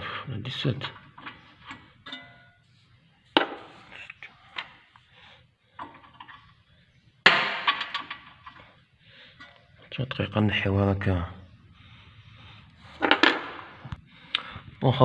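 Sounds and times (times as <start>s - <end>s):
metal clatter: 13.0s - 13.8s.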